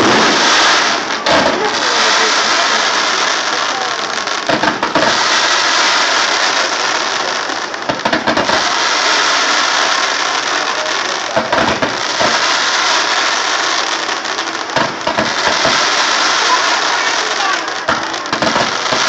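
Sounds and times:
fireworks hissing rush: 0.0s - 19.0s
quick firework pops: 4.4s - 5.2s, 7.2s - 8.7s, 10.7s - 12.4s, 14.7s - 16.5s, 17.8s - 19.0s.

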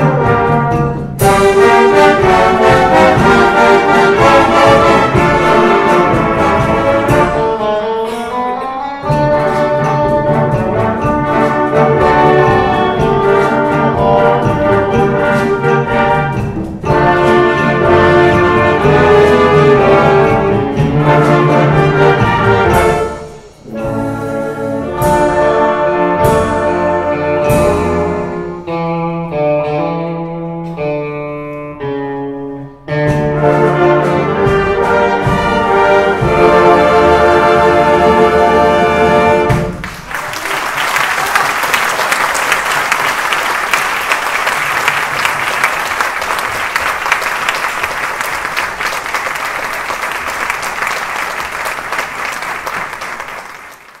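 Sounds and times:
wind band playing: 0.0s - 54.0s
audience applauding: 39.7s - 54.0s.

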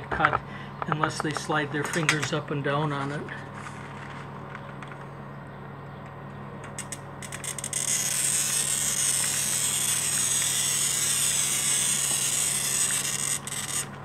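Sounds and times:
glass cutter scratching glass: 6.8s - 14.0s.

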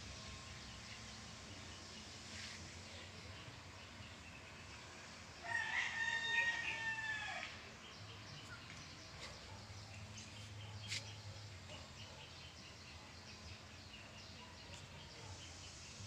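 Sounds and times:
rooster crowing: 5.4s - 7.5s.

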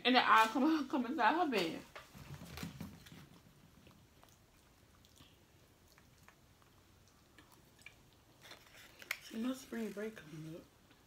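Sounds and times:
chewing: 3.2s - 11.0s.

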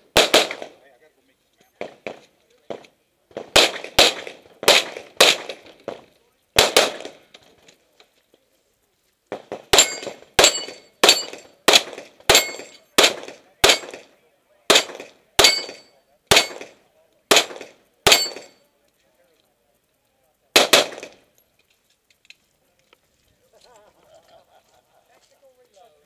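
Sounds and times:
pistol shots: 0.1s - 0.8s, 1.8s - 6.0s, 6.6s - 7.3s, 9.3s - 18.6s, 20.6s - 21.2s
metallic ring of steel plates: 12.3s - 12.9s, 18.1s - 18.6s.

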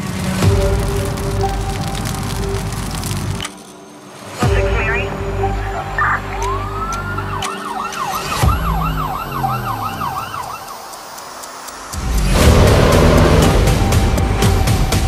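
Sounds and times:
low music drone with hits: 4.4s - 15.0s
police siren wailing and yelping: 5.8s - 11.8s.

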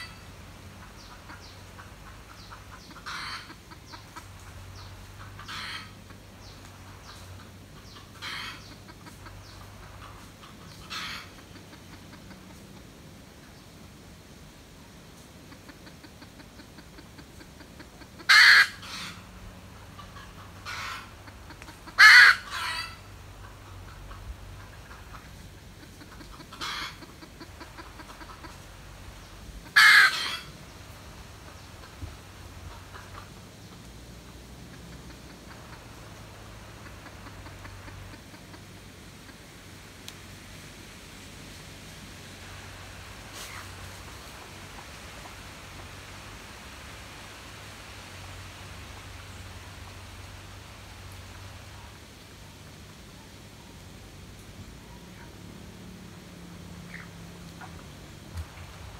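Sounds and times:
junglefowl harsh clucks: 0.0s - 13.6s, 15.4s - 40.2s, 42.3s - 46.2s, 56.8s - 58.9s.

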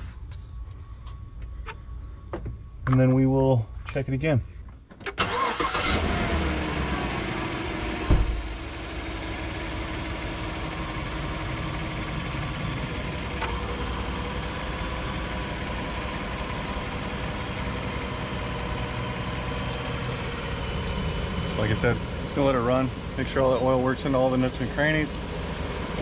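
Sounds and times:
truck engine idling: 6.8s - 26.0s
loud thump: 8.0s - 8.5s.

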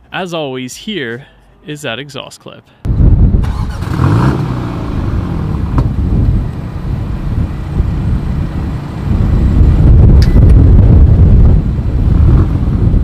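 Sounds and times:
car exhaust idling and revving: 2.9s - 13.0s.

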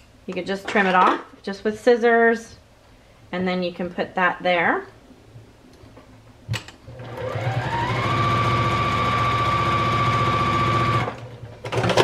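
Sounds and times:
sewing machine motor humming: 6.9s - 12.0s.

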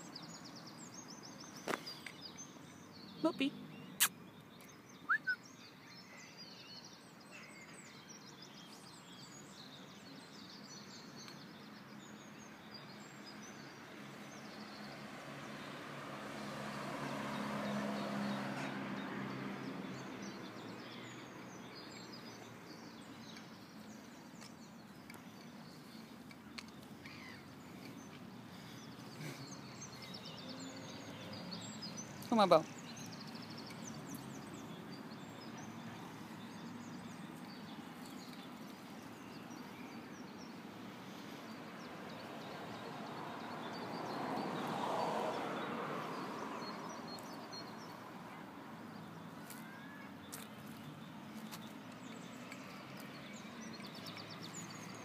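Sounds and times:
small birds chirping: 0.0s - 55.0s
vehicle passing: 14.6s - 21.5s, 27.5s - 37.4s, 40.6s - 49.2s.

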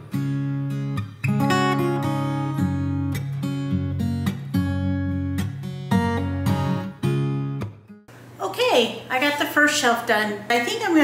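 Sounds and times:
strummed acoustic guitar: 0.0s - 8.0s.

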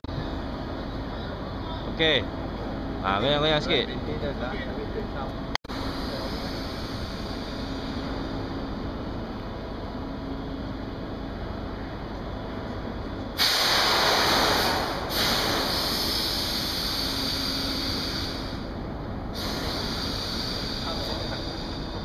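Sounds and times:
station background noise: 0.0s - 13.4s
train compressed air hiss: 5.7s - 8.5s, 13.4s - 22.0s.

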